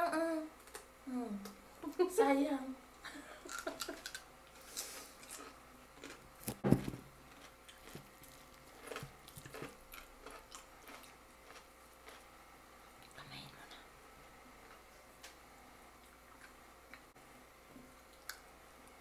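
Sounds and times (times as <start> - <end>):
chewing: 3.4 - 6.6, 7.3 - 12.3.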